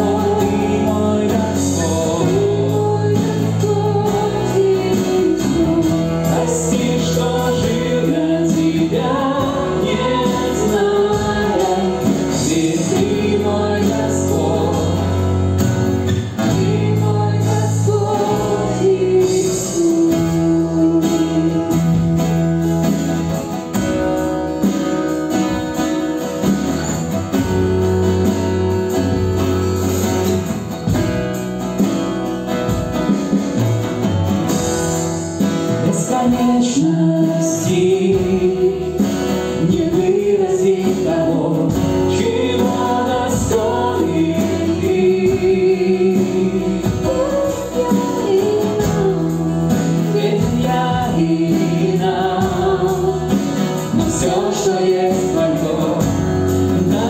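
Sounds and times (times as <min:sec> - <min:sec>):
voices singing: 0:00.0 - 0:22.2, 0:35.6 - 0:57.0
drums: 0:00.0 - 0:57.0
electric guitars: 0:00.0 - 0:57.0
strummed acoustic guitar: 0:00.0 - 0:57.0.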